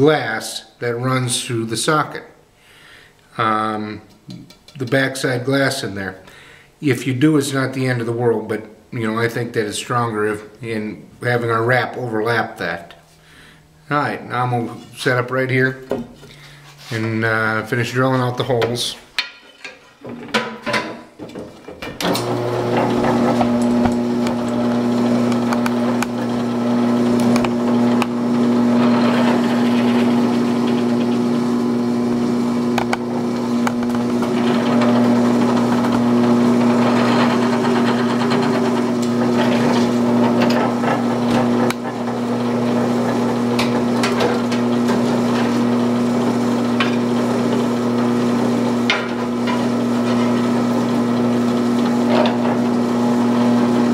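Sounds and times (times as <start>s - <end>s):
electric drill drilling wood: 22.0s - 53.9s.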